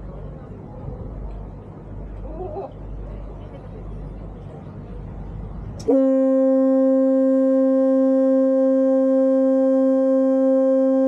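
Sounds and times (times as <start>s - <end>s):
ship's horn long blast: 5.8s - 11.0s.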